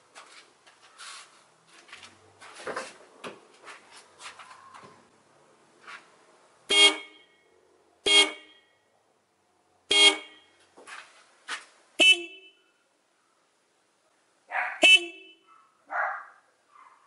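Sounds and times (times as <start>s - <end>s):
car horn honks: 6.7s - 8.8s, 9.9s - 10.6s, 12.0s - 12.8s, 14.8s - 15.5s.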